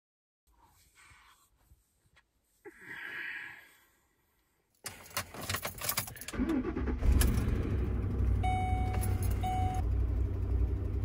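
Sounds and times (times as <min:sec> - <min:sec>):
keys rattling: 0:04.9 - 0:06.3
truck engine starting and idling: 0:05.9 - 0:11.0
short electronic beeps: 0:08.4 - 0:09.8.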